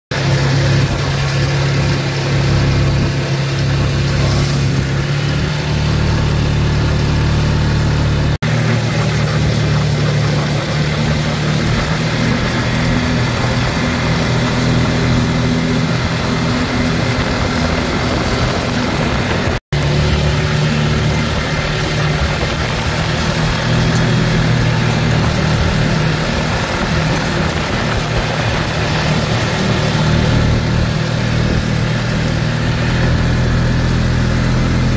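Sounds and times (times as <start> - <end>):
vehicle engine running: 0.1 - 34.9
wind noise: 10.2 - 33.8.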